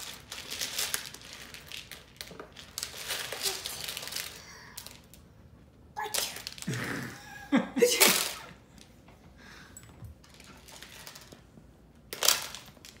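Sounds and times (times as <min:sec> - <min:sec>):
person sneezing: 0:07.8 - 0:08.5.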